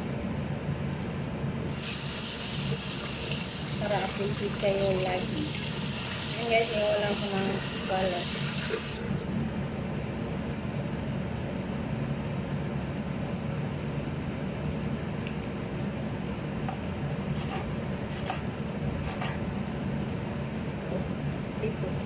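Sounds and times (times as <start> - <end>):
steady low hum: 0.0 - 22.0
knife cutting lettuce on board: 17.3 - 19.4.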